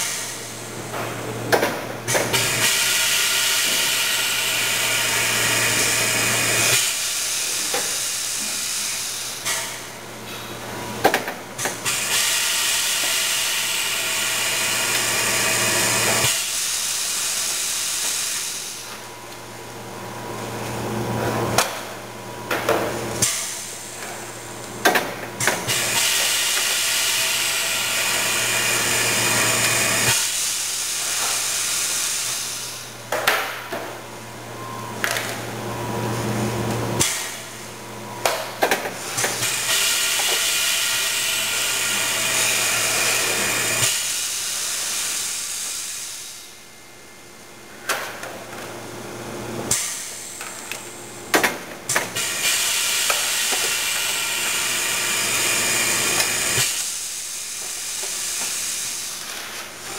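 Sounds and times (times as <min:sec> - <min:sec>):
machine hissing: 0:02.3 - 0:09.8, 0:11.8 - 0:19.0, 0:25.4 - 0:32.9, 0:39.0 - 0:46.5, 0:51.9 - 0:59.9.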